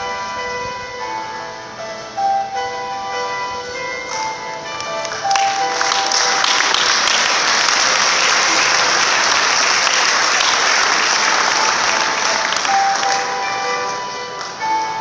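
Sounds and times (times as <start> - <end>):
audience clapping: 4.1 - 14.7.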